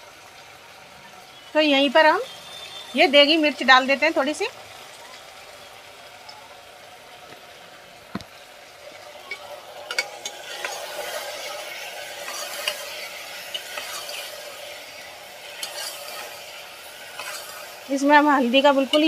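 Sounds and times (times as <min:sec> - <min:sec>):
vegetables sizzling: 0:00.0 - 0:19.0
ladle scraping and clinking pot: 0:08.9 - 0:17.9.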